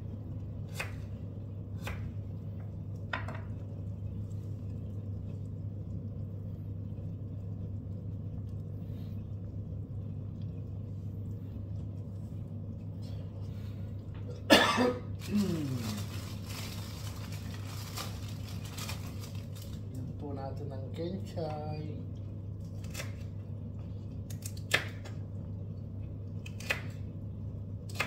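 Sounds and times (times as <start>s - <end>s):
low hum: 0.0s - 28.0s.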